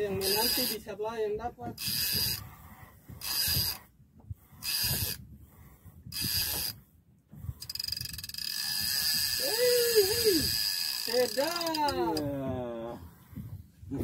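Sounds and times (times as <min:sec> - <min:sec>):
fishing reel ratcheting: 0:00.2 - 0:00.9, 0:01.8 - 0:02.5, 0:03.2 - 0:03.8, 0:04.6 - 0:05.2, 0:06.1 - 0:06.8, 0:07.6 - 0:12.3.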